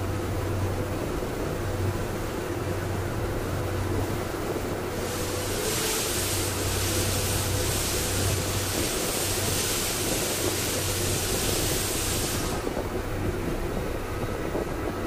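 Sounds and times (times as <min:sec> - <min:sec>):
train low hum: 0:00.0 - 0:15.0
loud even hiss: 0:04.9 - 0:12.9.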